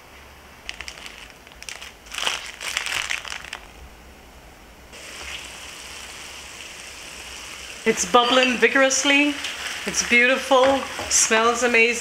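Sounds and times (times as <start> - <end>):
plastic bag crinkling: 0.6 - 3.8.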